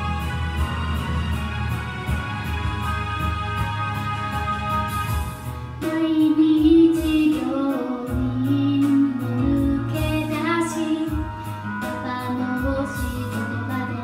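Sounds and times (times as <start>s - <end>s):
karaoke backing track: 0.0s - 14.0s
woman singing into microphone: 5.8s - 14.0s.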